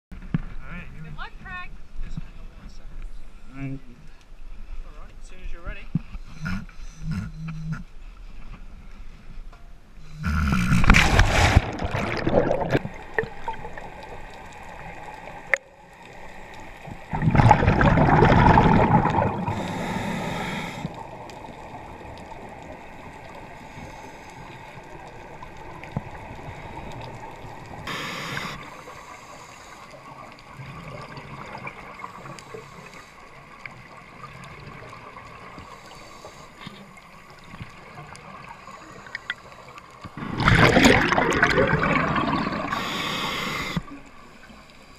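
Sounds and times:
low underwater hiss: 0:01.1 - 0:44.9
gurgling exhaled bubbles underwater: 0:10.4 - 0:23.8, 0:30.1 - 0:32.7, 0:40.1 - 0:44.2
diver splashing into water: 0:10.7 - 0:12.9, 0:40.2 - 0:42.8.

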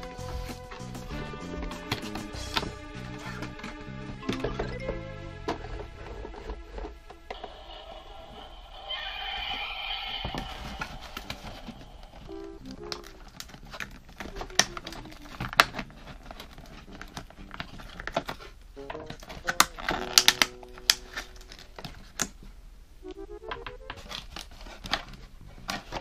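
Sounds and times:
faint background music: 0:00.0 - 0:08.6, 0:10.4 - 0:26.0
plastic packaging crinkling: 0:10.4 - 0:22.4
pitched musical sound: 0:23.0 - 0:24.1.

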